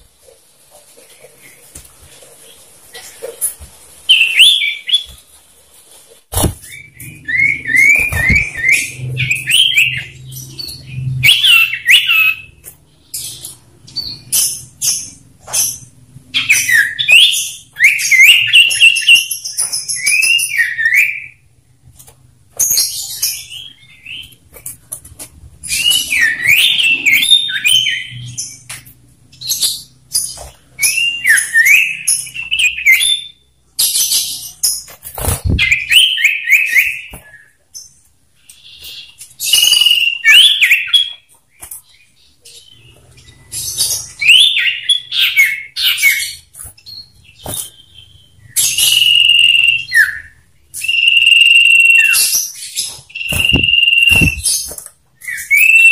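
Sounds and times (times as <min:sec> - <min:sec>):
sharp high bird chips: 0:46.0 - 0:55.9
bird singing whistled phrases: 0:48.5 - 0:54.5, 0:55.2 - 0:55.9.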